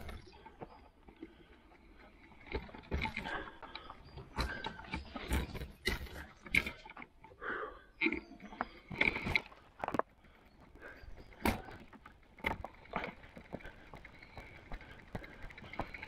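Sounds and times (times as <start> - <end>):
bike rattling over rough trail: 0.0 - 16.0
bike squeaks: 8.1 - 16.0.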